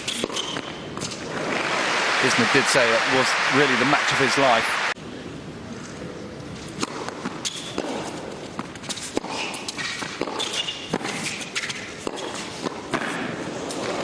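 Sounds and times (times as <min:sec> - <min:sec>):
shoes squeaking on court: 0:00.0 - 0:01.4, 0:06.6 - 0:14.0
rackets striking tennis ball: 0:00.0 - 0:01.8, 0:06.7 - 0:14.0.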